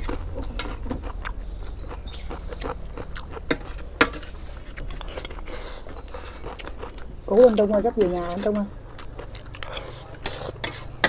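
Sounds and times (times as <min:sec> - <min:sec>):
close-up chewing: 0:00.0 - 0:11.0
metal spoons scraping metal trays: 0:03.4 - 0:06.6, 0:09.6 - 0:11.0.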